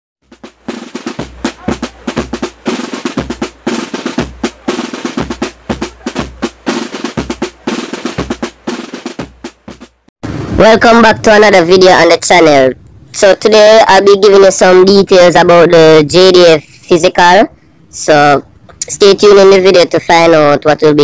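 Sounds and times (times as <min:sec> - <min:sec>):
fast drum hits and rolls: 0:00.2 - 0:12.5
deep pulsing bass: 0:10.2 - 0:11.7.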